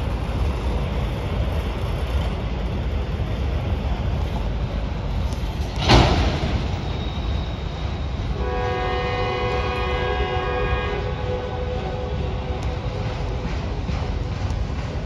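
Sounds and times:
freight train rumbling past: 0:00.0 - 0:15.0
multi-note train horn: 0:08.3 - 0:13.1.

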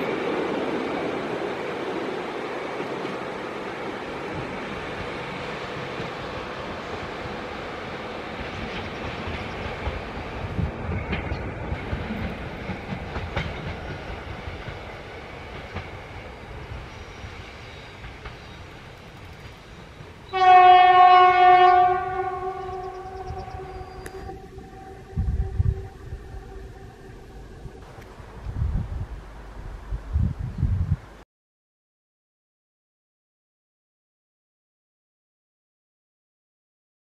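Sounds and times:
rail clicks: 0:00.0 - 0:28.6
train wheels rolling on track: 0:00.0 - 0:30.2
locomotive horn blast: 0:20.3 - 0:27.7.

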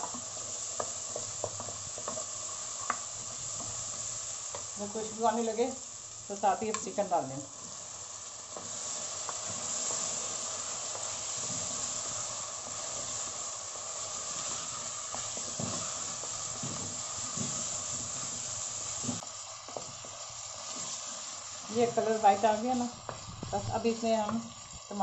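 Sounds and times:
wooden spoon scraping a pan: 0:00.0 - 0:05.0, 0:08.5 - 0:22.8
chicken sizzling in hot oil: 0:00.0 - 0:25.0.

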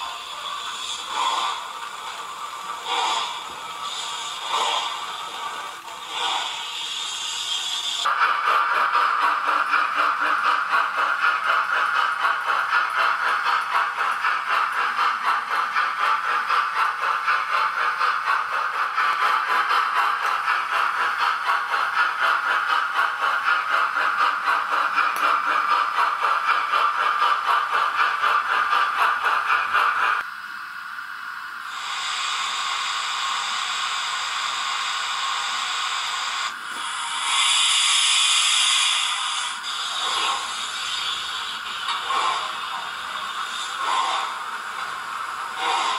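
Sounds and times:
steam hiss: 0:00.0 - 0:13.5, 0:31.6 - 0:45.9
rhythmic steam chuffing from speaker: 0:00.0 - 0:45.9.

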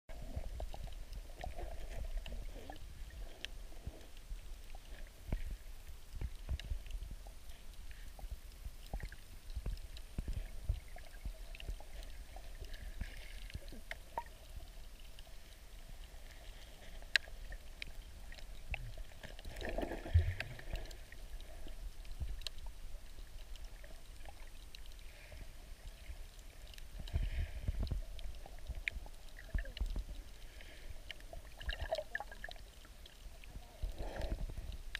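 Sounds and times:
low underwater rumble: 0:00.1 - 0:34.9
underwater clicks and crackles: 0:00.1 - 0:34.9
bubbles gurgling: 0:31.4 - 0:32.6.

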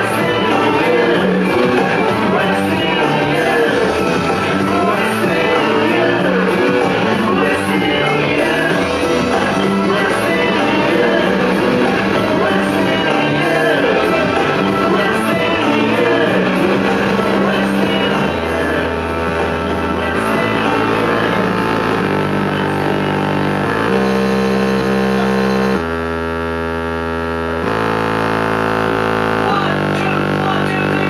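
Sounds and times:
dance music with droning chords: 0:00.0 - 0:31.0.

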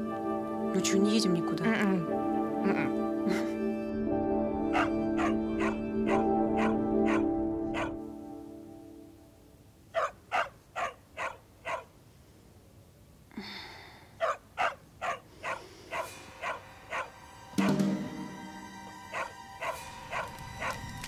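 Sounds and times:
dog barking: 0:04.7 - 0:08.0, 0:09.9 - 0:11.9, 0:14.2 - 0:17.1, 0:19.1 - 0:20.8.

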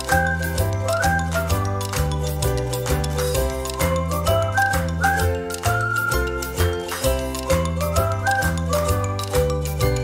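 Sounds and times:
light jingly background music: 0:00.0 - 0:10.0.

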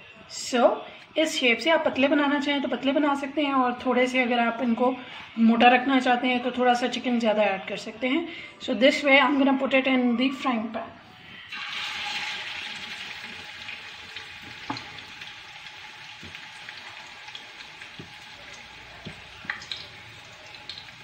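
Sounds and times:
hot oil sizzling: 0:11.5 - 0:21.0.

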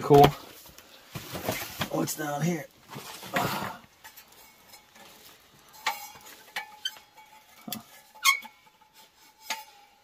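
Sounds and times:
rustling scrape of boxes: 0:01.0 - 0:02.3
objects clinking and knocking: 0:03.0 - 0:10.0.

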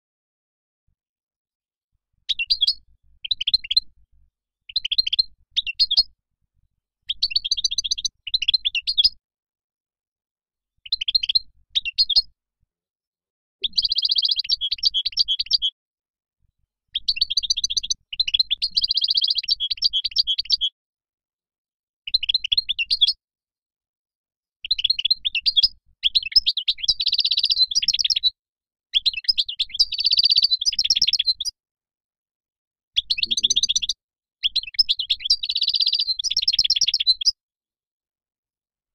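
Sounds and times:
goldfinch twittering song: 0:02.2 - 0:04.0, 0:04.7 - 0:06.2, 0:07.0 - 0:09.2, 0:10.8 - 0:12.3, 0:13.6 - 0:15.8, 0:16.9 - 0:20.8, 0:22.1 - 0:23.2, 0:24.6 - 0:28.4, 0:29.0 - 0:31.6, 0:33.0 - 0:37.4.

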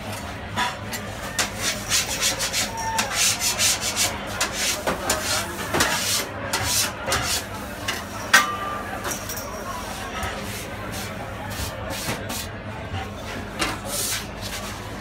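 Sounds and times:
dough scraping on stone counter: 0:00.6 - 0:08.1.

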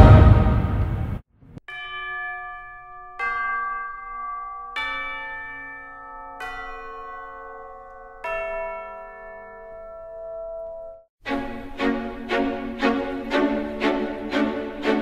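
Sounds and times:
bell chimes: 0:01.7 - 0:11.1.

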